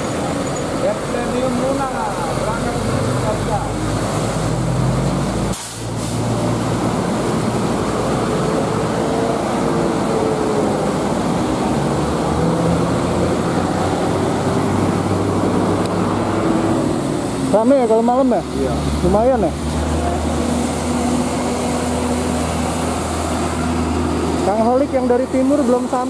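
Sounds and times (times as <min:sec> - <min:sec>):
tyre hiss on wet road: 0:01.8 - 0:11.4.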